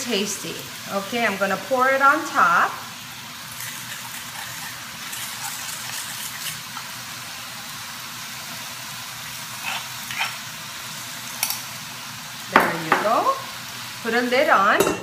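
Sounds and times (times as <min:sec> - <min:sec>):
meat and vegetables sizzling: 0:00.0 - 0:15.0
sauce pouring: 0:02.9 - 0:11.6.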